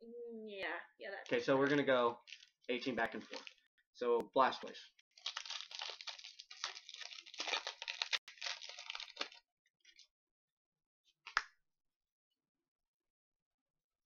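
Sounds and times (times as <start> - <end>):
foil wrapper crinkling and tearing: 1.3 - 3.6, 5.1 - 10.0.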